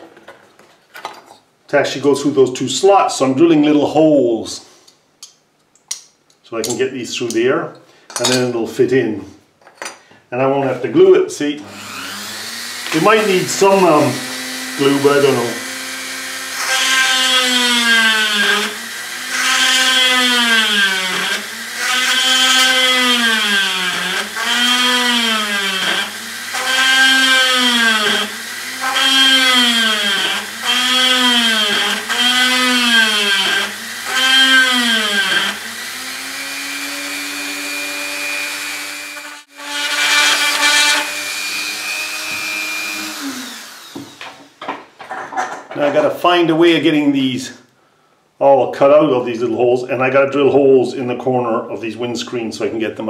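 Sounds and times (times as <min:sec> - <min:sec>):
rotary tool drilling aluminium: 0:11.6 - 0:44.3.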